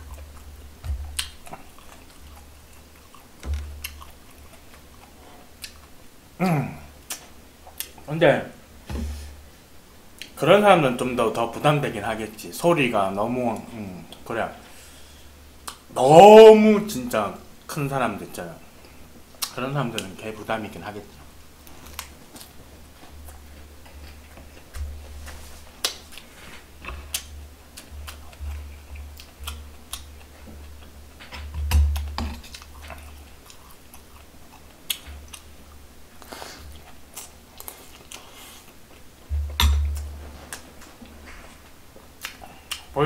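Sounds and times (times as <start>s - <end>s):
close-miked chewing: 0.0s - 6.1s, 21.6s - 39.2s, 40.0s - 43.0s
low thumps: 8.8s - 9.4s, 39.3s - 40.4s.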